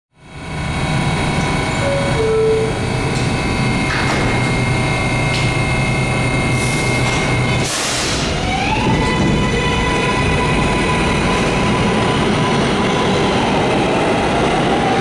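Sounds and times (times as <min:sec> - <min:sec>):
subway train running: 0:00.2 - 0:15.0
short electric tone: 0:01.7 - 0:02.8.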